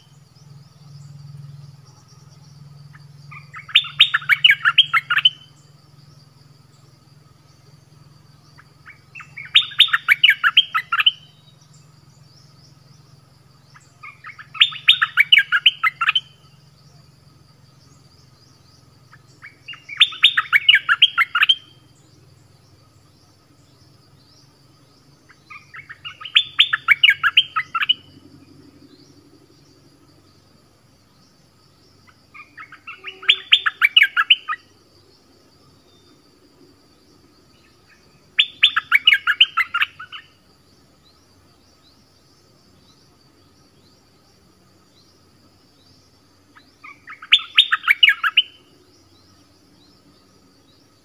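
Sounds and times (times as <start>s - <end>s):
faint steady high tone: 32.0s - 34.8s.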